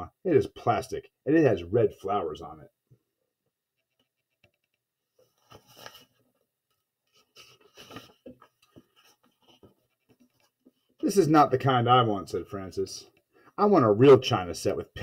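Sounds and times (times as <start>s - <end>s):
book page turning and rustling: 3.8s - 10.9s.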